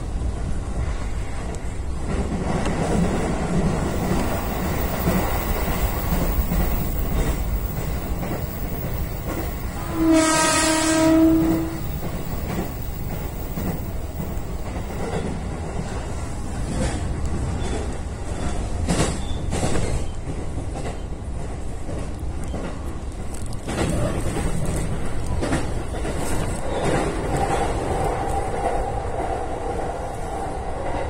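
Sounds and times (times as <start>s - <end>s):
train wheels and motors rumbling: 0.0s - 31.0s
train horn blast: 9.7s - 12.3s.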